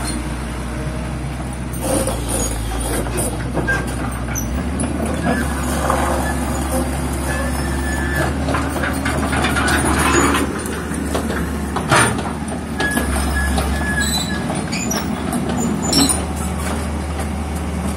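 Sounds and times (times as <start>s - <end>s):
diesel engine running: 0.0s - 17.9s
high squeals: 5.2s - 8.4s.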